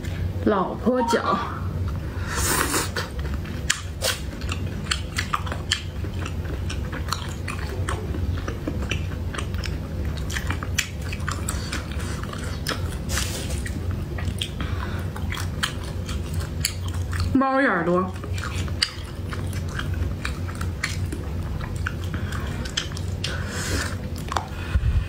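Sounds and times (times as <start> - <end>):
steady low hum: 0.0 - 25.0
person chewing food: 1.8 - 17.4, 18.1 - 24.8
wet mouth clicks and smacks: 24.2 - 24.6.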